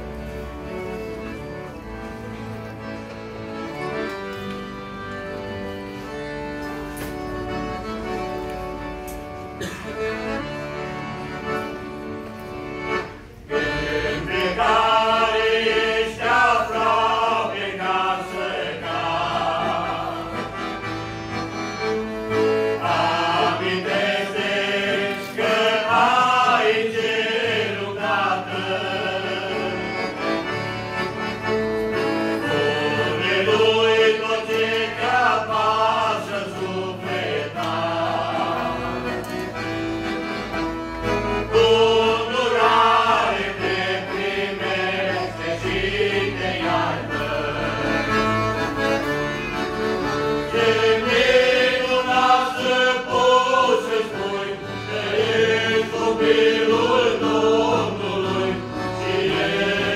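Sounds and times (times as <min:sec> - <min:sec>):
accordion: 0:00.0 - 0:59.9
men singing together: 0:13.8 - 0:20.4, 0:22.8 - 0:29.9, 0:32.5 - 0:39.0, 0:41.5 - 0:48.0, 0:50.5 - 0:59.9.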